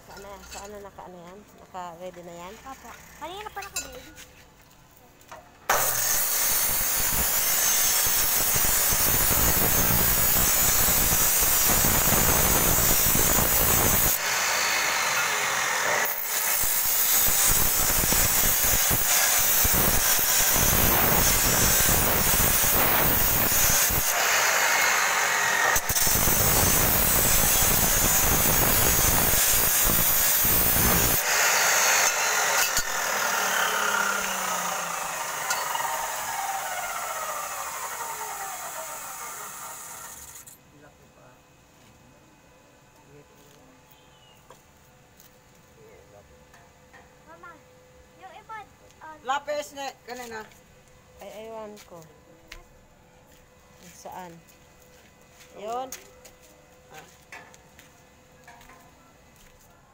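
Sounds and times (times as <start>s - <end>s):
chop saw grinding through steel: 5.7s - 40.6s.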